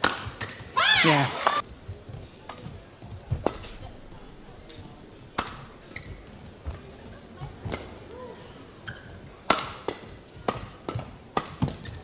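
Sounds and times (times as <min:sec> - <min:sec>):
badminton racket hits: 0:05.3 - 0:07.0, 0:08.9 - 0:12.0.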